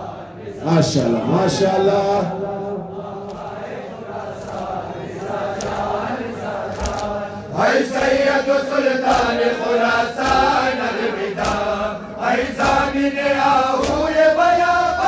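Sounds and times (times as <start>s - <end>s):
men chanting a lament: 0.0s - 15.0s
hands slapping chests: 3.2s - 3.6s, 4.4s - 8.4s, 9.0s - 14.2s.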